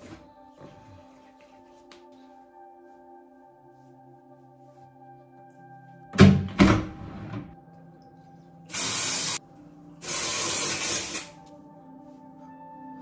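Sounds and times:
aerosol spray hissing: 8.7 - 9.4, 10.0 - 11.4.

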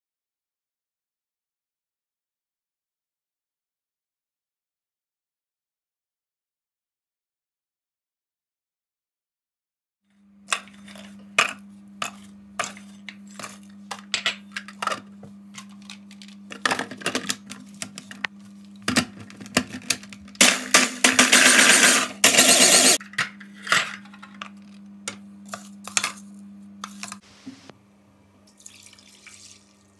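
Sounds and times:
food processor chopping: 20.4 - 23.0.

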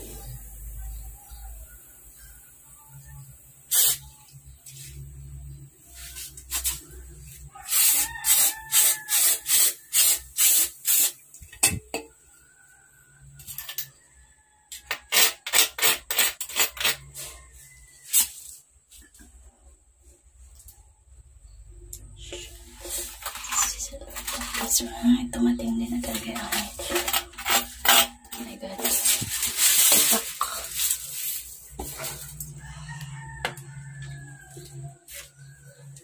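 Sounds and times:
aerosol spray hissing: 3.7 - 4.2.

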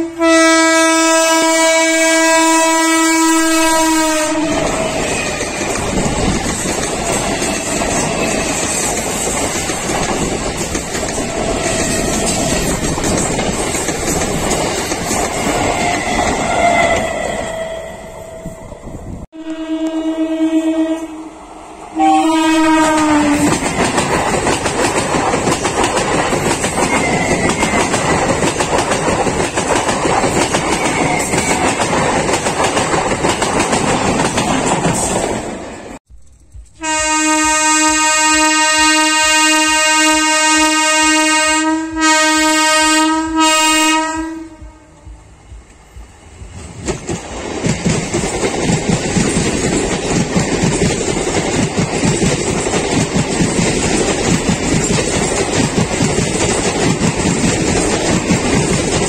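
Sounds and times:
train horn blasts: 0.0 - 5.1, 15.5 - 18.6, 19.4 - 23.6, 36.7 - 45.2
long train horn: 0.0 - 5.3, 15.4 - 18.7, 19.3 - 23.6, 36.8 - 45.3
train coaches rumbling and clacking: 0.9 - 19.3, 21.0 - 59.0.

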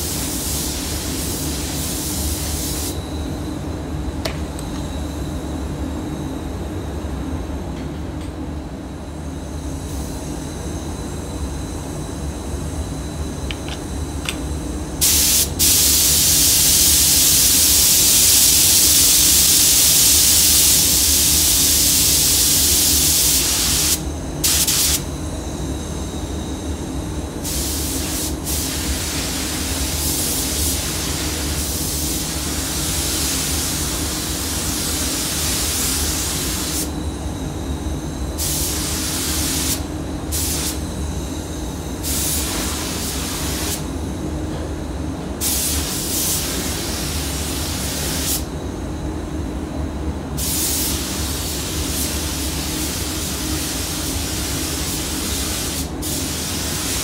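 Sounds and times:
paint spray gun hissing: 0.0 - 3.0, 15.0 - 25.1, 27.4 - 36.9, 38.4 - 40.8, 42.0 - 43.8, 45.4 - 48.5, 50.4 - 57.0
spray booth air system hum: 0.0 - 57.0.

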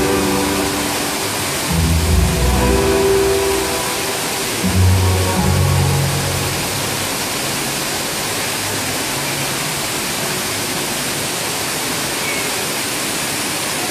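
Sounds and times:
show music: 0.0 - 8.0
indoor water fountain rushing: 0.0 - 13.9.

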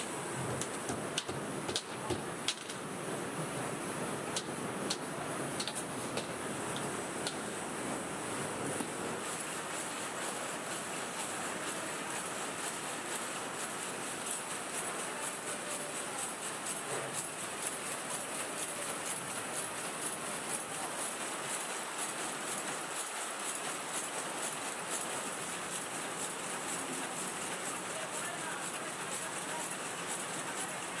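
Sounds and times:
steady mechanical hum: 0.0 - 31.0.

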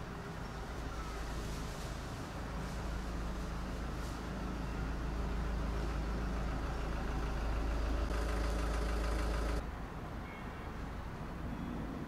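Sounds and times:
machine hum with low rumble: 4.8 - 9.6.

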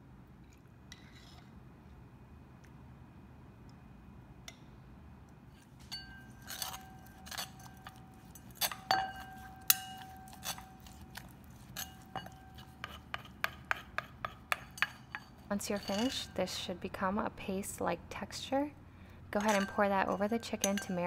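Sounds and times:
metal spoon clinking in mortar: 5.9 - 16.4, 19.4 - 21.0.

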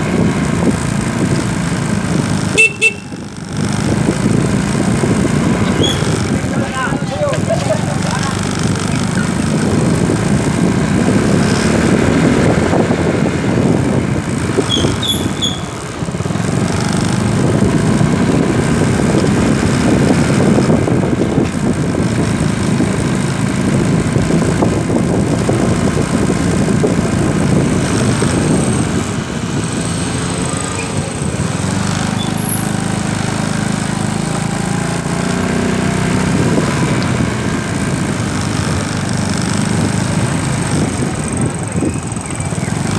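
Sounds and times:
road and wind noise: 0.0 - 42.9
small vehicle engine running: 0.0 - 42.9.

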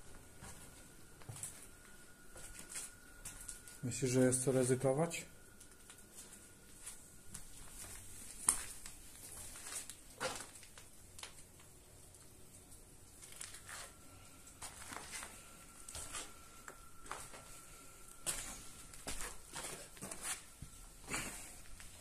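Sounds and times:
footsteps crunching on rubble: 6.2 - 11.4, 18.2 - 21.9.

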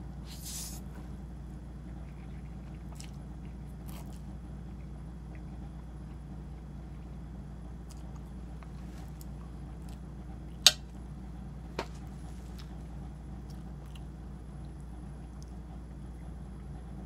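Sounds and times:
steady low hum: 0.0 - 17.0
chewing and slurping noodles: 1.7 - 7.2, 11.9 - 15.9.

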